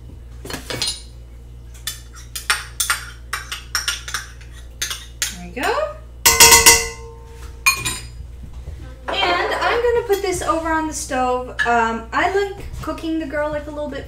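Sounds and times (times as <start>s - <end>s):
metal pot clanging: 6.2s - 8.1s
spoon clinking in a pot: 6.3s - 8.1s.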